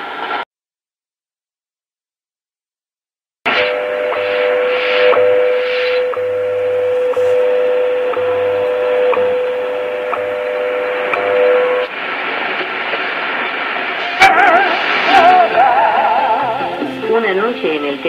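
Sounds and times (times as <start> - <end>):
radio static and hiss: 3.5 - 18.0
steady radio tone: 3.5 - 18.0.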